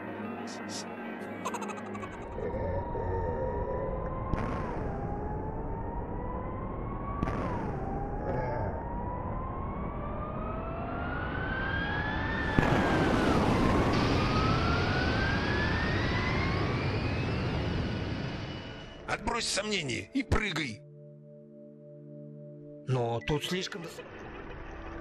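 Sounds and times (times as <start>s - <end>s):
jet engine whine climbing in pitch: 2.9s - 19.1s, 24.0s - 25.0s
rushing jet roar: 10.9s - 19.0s
loud burst: 12.4s - 19.0s.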